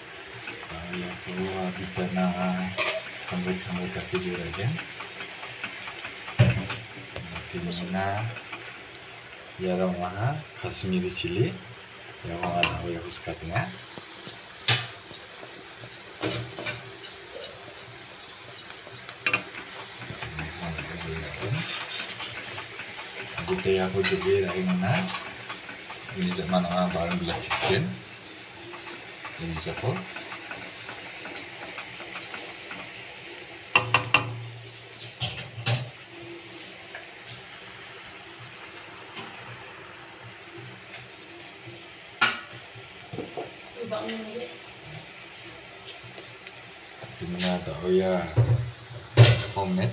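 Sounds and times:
food sizzling in hot oil: 0.0s - 49.9s
utensil knocking against pan: 2.8s - 7.5s, 33.7s - 34.4s
metal plate knocking against pan: 33.7s - 34.4s.

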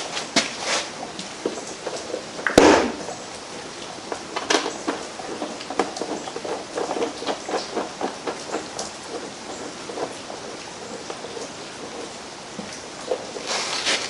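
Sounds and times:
clicks and rattles of engine parts: 4.0s - 14.0s.

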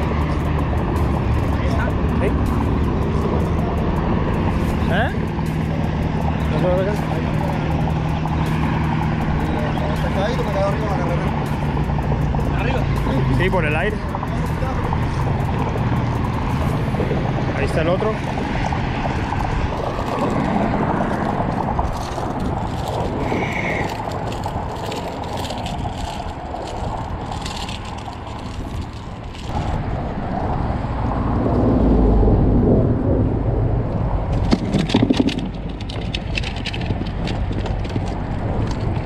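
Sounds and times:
low rumble of traffic: 0.0s - 39.0s
vehicle passing: 0.0s - 39.0s
sharp clicks and knocks: 34.3s - 39.0s.

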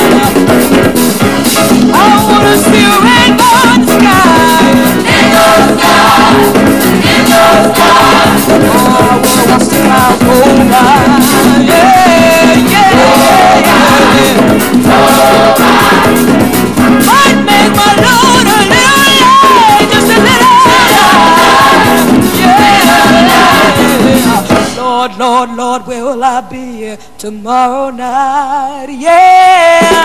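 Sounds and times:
gospel choir singing with band: 0.0s - 26.4s, 29.0s - 30.0s.

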